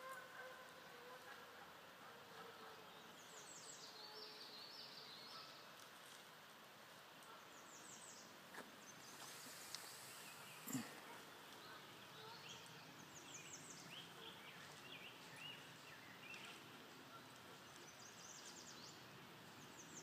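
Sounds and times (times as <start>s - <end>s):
songbird singing: 2.3s - 5.8s, 7.1s - 20.0s.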